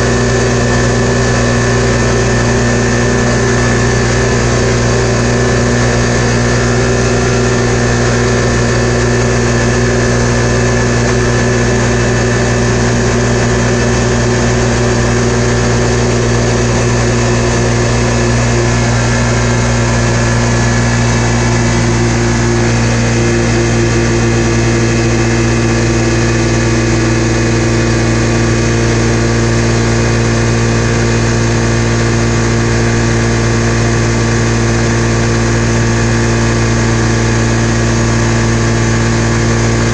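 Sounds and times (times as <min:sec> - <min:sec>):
engine running at high revs: 0:00.0 - 0:39.9.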